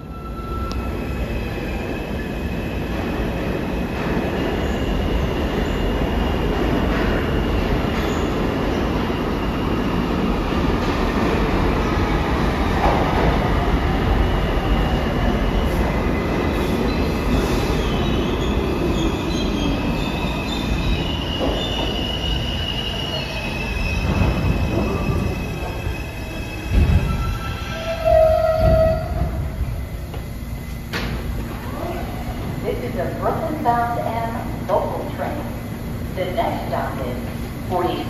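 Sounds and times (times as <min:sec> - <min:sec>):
train wheel squeal: 0:00.0 - 0:02.4, 0:06.9 - 0:09.7, 0:16.6 - 0:29.5
train wheels rumbling on rail: 0:00.0 - 0:38.0.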